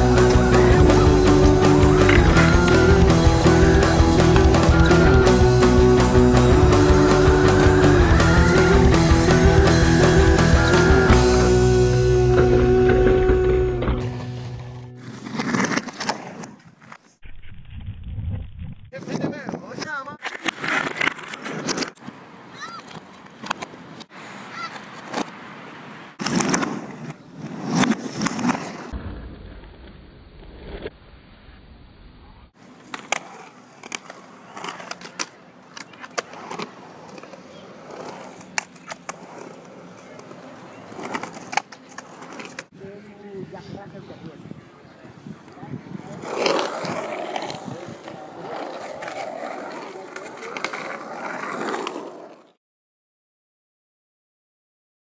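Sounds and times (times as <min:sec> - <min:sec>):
skateboard wheels rolling: 0:00.0 - 0:18.8, 0:19.7 - 0:31.0, 0:32.3 - 0:42.8, 0:44.4 - 0:52.6
sharp skateboard clicks: 0:19.8 - 0:25.4, 0:26.2 - 0:29.5, 0:32.6 - 0:42.7.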